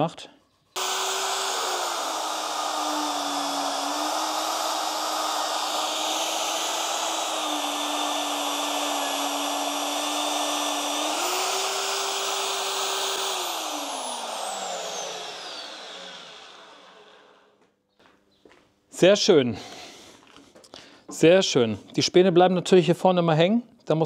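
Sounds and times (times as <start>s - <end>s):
magnetic drill drilling steel: 0.8s - 17.5s.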